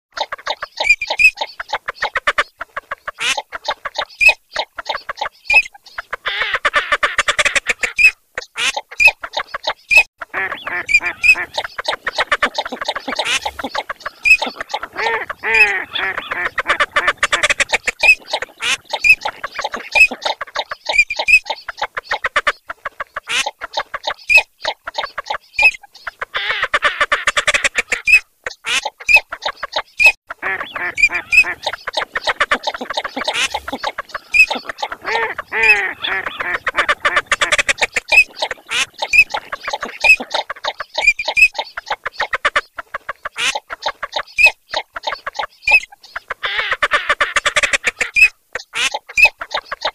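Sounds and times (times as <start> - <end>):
ducks quacking and clucking: 0.1 - 49.9
high-pitched duck calls: 0.2 - 49.9.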